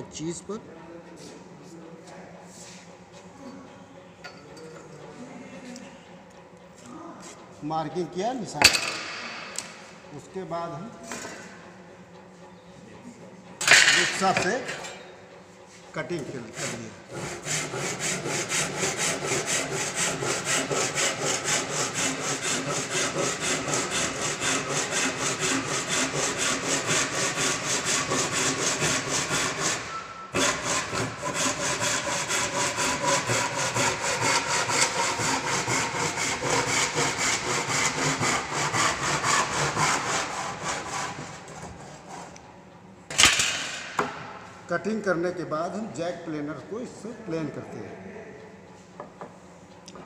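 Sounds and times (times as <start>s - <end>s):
hand saw cutting timber: 13.6s - 14.9s, 16.0s - 42.4s.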